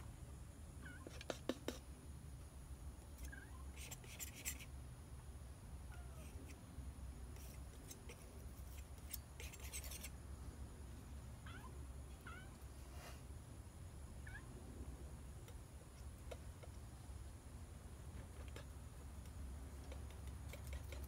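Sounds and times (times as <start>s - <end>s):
cat chirping meows: 0.8s - 1.2s, 3.2s - 3.8s, 5.9s - 6.4s, 11.4s - 12.6s, 14.2s - 14.5s
palette knife scraping paint: 7.3s - 10.2s.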